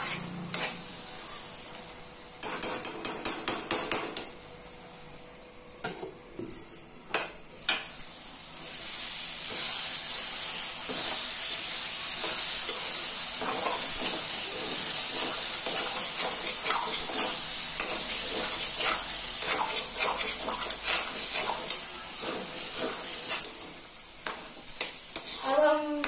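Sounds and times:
metal spatula scraping a pan: 0.0s - 0.9s, 12.0s - 26.0s
food sizzling: 7.5s - 26.0s.

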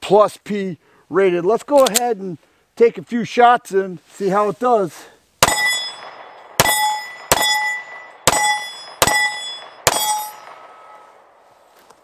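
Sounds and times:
pistol shots: 5.4s - 11.0s
steel target ringing: 5.4s - 11.2s.

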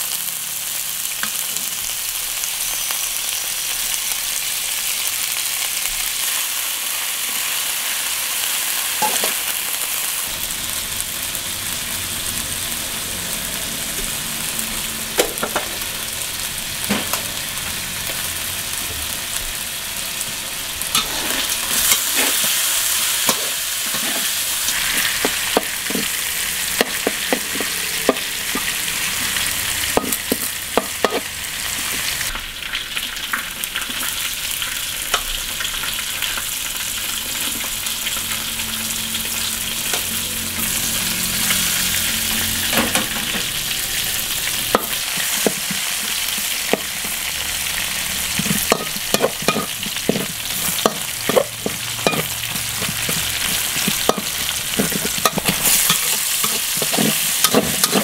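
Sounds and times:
food sizzling in hot oil: 0.0s - 58.0s
metal spatula scraping a wok: 20.8s - 32.3s, 38.8s - 58.0s.

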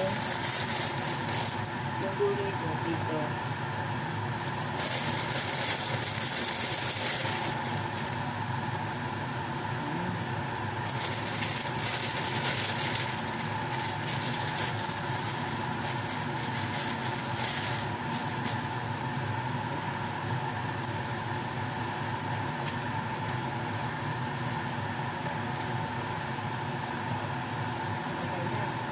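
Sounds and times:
lettuce sizzling in a wok: 0.0s - 2.0s, 3.5s - 8.9s, 10.8s - 19.2s
steady hum: 0.0s - 28.9s.

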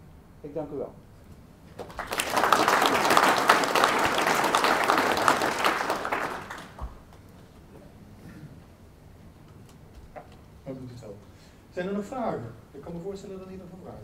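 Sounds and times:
audience applauding: 1.8s - 7.0s.

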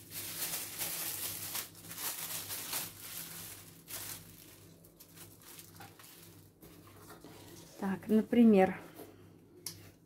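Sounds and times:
rustling and handling noises: 0.0s - 10.0s.

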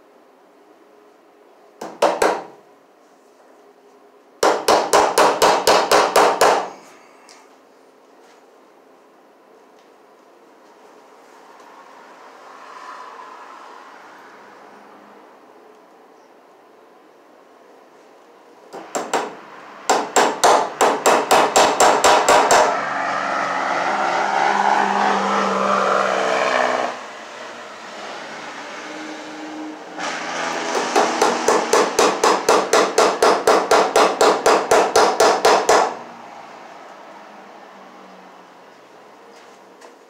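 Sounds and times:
hammer striking staples into wood: 1.8s - 2.5s, 4.4s - 6.8s, 18.7s - 22.7s, 30.7s - 36.0s.

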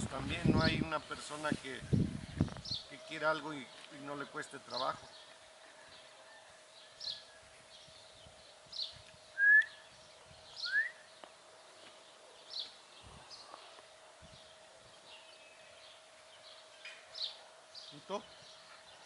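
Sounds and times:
bird chirps: 2.3s - 13.7s
rising whistled bird notes: 8.8s - 11.1s.

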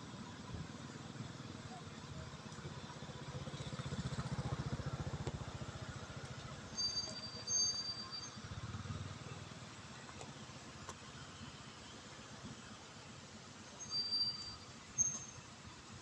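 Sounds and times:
engine running with low pulsing: 0.0s - 13.8s
thin high whistling tone: 6.7s - 8.5s, 13.7s - 15.5s.

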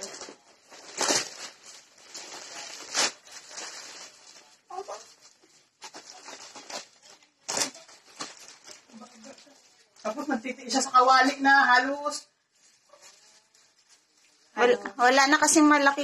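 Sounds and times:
sharp crackles: 0.0s - 10.4s
paper and plastic crinkling: 0.0s - 16.0s.

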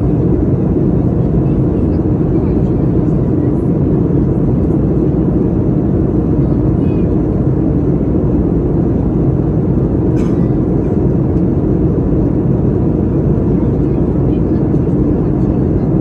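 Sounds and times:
airplane cabin engine drone: 0.0s - 16.0s.

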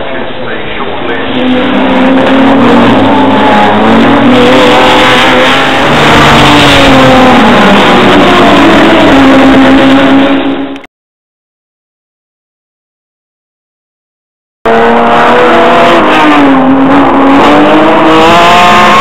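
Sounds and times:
racing car engines passing: 0.0s - 10.8s.

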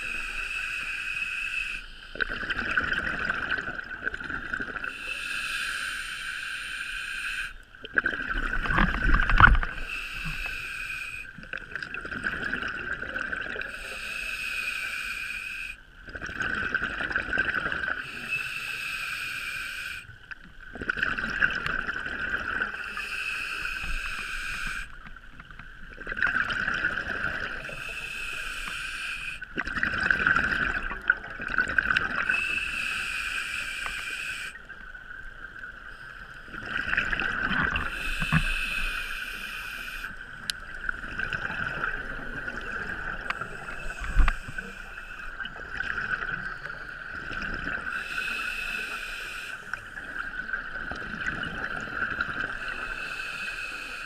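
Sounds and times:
scuba regulator breathing: 0.0s - 2.2s, 4.8s - 7.7s, 8.7s - 11.4s, 13.6s - 15.8s, 18.0s - 20.2s, 22.6s - 25.1s, 27.2s - 29.6s, 32.2s - 34.7s, 37.6s - 41.0s, 41.8s - 50.2s, 52.0s - 54.0s
gurgling exhaled bubbles: 2.1s - 5.0s, 7.8s - 10.4s, 11.5s - 13.8s, 16.1s - 18.2s, 20.7s - 22.8s, 25.8s - 28.0s, 29.5s - 32.5s, 36.5s - 39.0s, 40.3s - 48.3s, 50.0s - 52.9s.

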